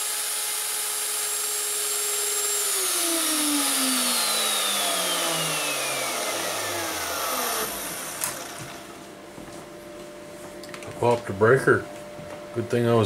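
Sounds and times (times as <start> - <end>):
router motor whine spinning down: 0.0 - 9.1
vacuum rushing: 2.8 - 9.0.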